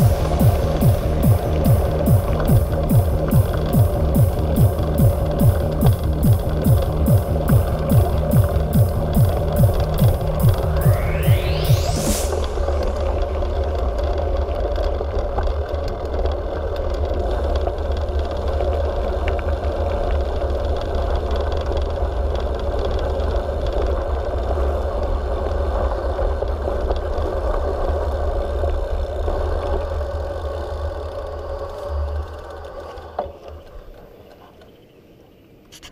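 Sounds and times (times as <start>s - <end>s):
bike rattles and clicks: 0.0s - 10.8s, 13.0s - 34.8s
bike tyres rumbling on gravel: 0.0s - 11.6s, 12.3s - 34.8s
wind buffeting microphone: 0.0s - 15.4s.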